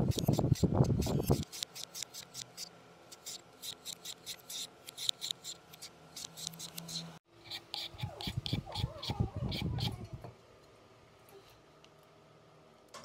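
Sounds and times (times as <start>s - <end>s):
shredder blade rasping fruit: 0.0s - 10.0s.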